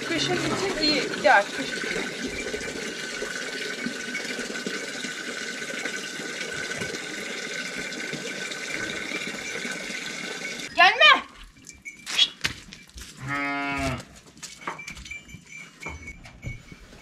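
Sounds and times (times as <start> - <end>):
water running into container: 0.0 - 10.8.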